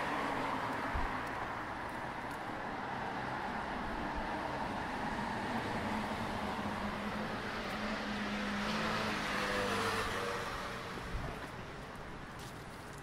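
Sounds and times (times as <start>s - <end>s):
road traffic noise: 0.0s - 13.0s
vehicle passing: 4.4s - 11.4s.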